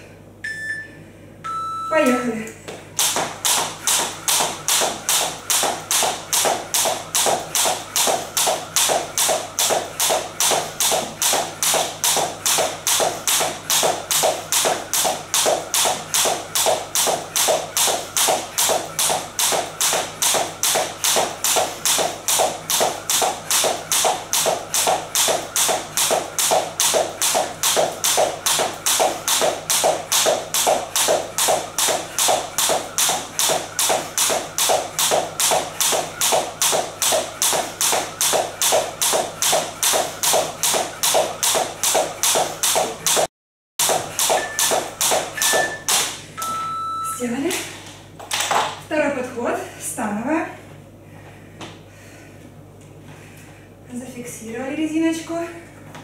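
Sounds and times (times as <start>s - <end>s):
sneakers landing: 2.7s - 45.3s
jump rope tapping wooden floor: 2.7s - 46.2s.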